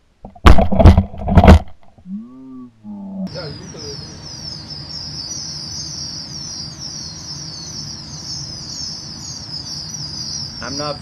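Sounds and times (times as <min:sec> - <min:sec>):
steady low hum: 0:00.0 - 0:11.0
pheasant chicks peeping: 0:03.2 - 0:11.0.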